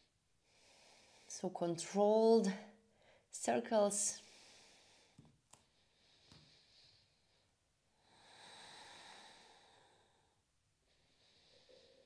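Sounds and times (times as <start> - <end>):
faint breathing: 0.4 - 1.4, 4.2 - 12.0.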